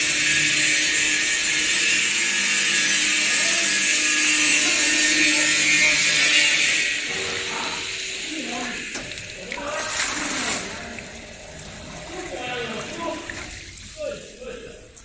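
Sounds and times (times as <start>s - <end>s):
water gushing onto concrete floor: 0.0s - 15.0s
mixer drive hum: 3.8s - 15.0s.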